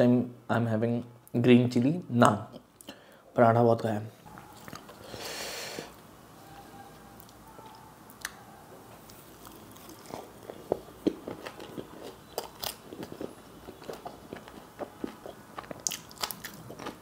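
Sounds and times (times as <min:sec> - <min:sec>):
wet chewing: 0:04.3 - 0:05.0, 0:07.2 - 0:17.0
food rustling: 0:08.9 - 0:17.0.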